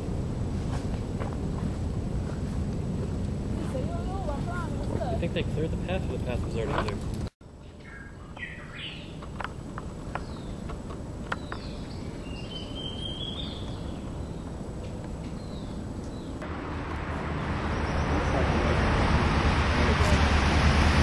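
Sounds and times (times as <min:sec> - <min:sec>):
bird whistled calls: 0:07.8 - 0:09.2, 0:11.5 - 0:14.4.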